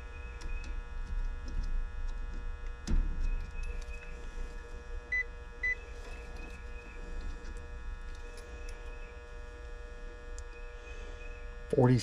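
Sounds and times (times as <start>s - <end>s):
steady hum: 0.0s - 12.0s
clamp meter beeps: 5.1s - 5.8s.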